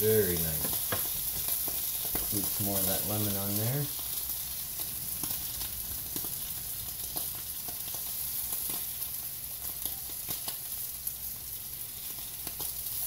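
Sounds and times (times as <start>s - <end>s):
fish sizzling in oil: 0.0s - 13.0s.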